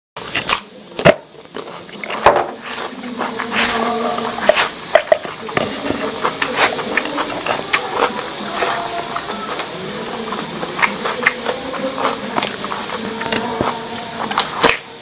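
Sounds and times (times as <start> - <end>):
wet chewing and slurping: 1.3 - 15.0
crunchy cucumber bites: 4.4 - 15.0.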